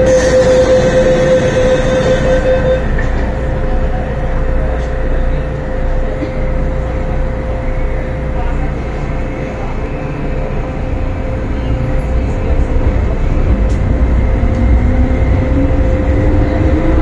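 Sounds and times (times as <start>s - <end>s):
steady hum: 0.0s - 9.7s
train wheels rumbling: 0.0s - 17.0s.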